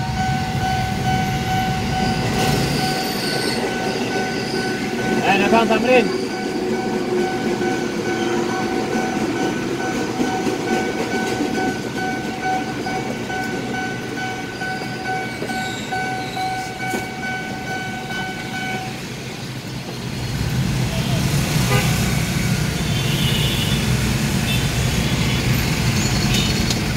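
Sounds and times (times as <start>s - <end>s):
crossing warning bell ringing: 0.0s - 19.7s, 21.7s - 23.1s
train wheels clattering on rails: 0.0s - 22.8s, 23.8s - 26.9s.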